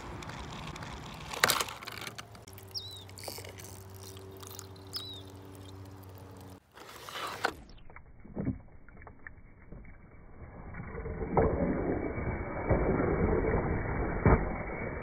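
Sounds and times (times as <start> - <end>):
low mechanical hum: 0.0 - 8.4
high bird chirps: 2.6 - 3.4, 4.0 - 6.0.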